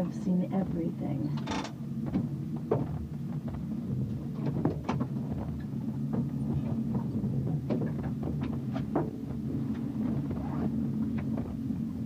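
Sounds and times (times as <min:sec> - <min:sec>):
vehicle knocks and rattles: 0:00.6 - 0:11.6.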